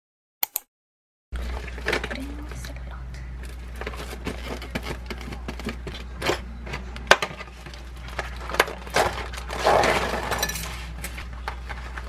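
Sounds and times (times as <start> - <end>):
plastic packaging clicks and crackles: 3.4 - 9.6.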